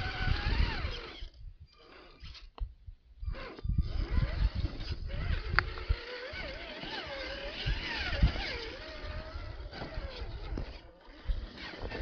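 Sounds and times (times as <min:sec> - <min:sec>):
rc car electric motor whining: 0:00.0 - 0:02.6, 0:03.2 - 0:12.0.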